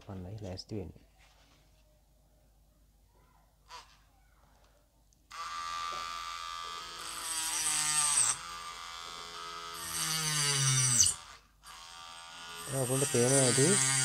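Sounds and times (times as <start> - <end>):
rotary tool high whine: 5.3 - 14.0
cutting disc rasping on wood: 5.8 - 14.0.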